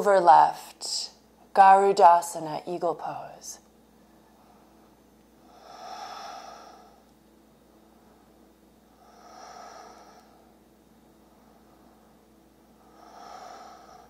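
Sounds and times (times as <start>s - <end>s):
woman breathing: 4.3s - 14.0s.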